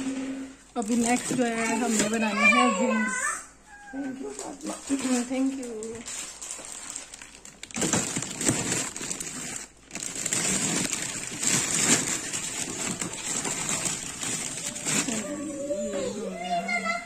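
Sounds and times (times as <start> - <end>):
plastic bags crinkling: 0.7 - 2.8, 4.2 - 15.8.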